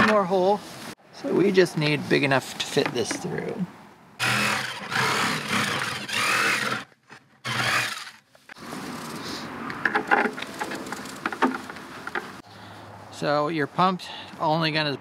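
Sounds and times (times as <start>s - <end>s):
jigsaw cutting plastic: 4.2s - 8.2s.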